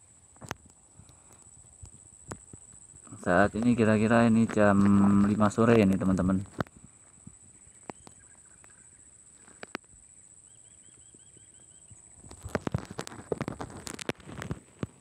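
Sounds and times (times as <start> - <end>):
steady high-pitched hum: 0.0 - 15.0
bird chirping: 7.1 - 12.6.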